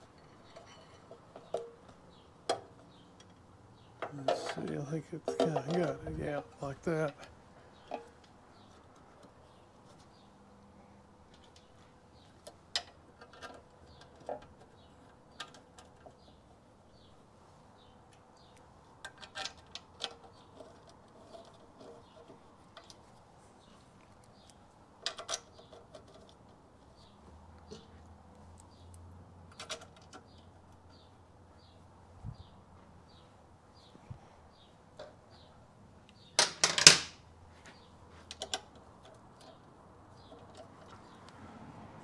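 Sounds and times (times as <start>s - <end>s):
metal parts and tools clicking: 0.0s - 9.4s, 19.0s - 23.0s, 36.2s - 37.2s.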